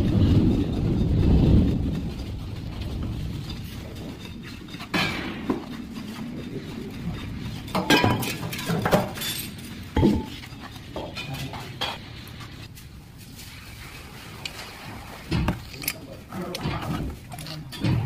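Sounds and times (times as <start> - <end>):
metal lid clinks and knocks: 7.7 - 10.4.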